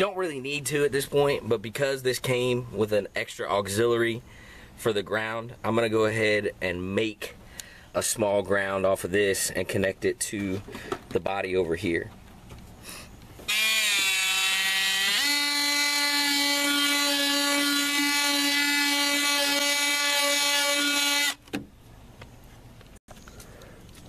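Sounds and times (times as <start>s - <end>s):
cordless drill drilling into sheet metal: 13.5s - 21.4s.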